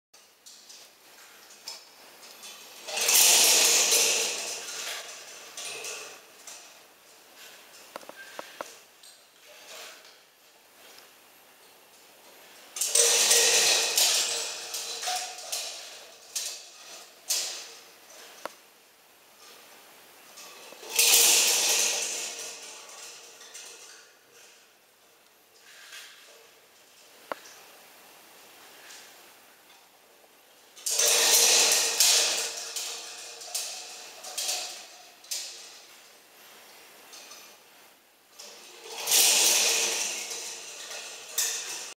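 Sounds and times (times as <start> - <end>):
metal band scraping on tiles: 1.2 - 8.8, 9.4 - 10.2, 12.8 - 18.5, 20.4 - 24.6, 25.6 - 26.4, 30.8 - 37.6, 38.4 - 41.9.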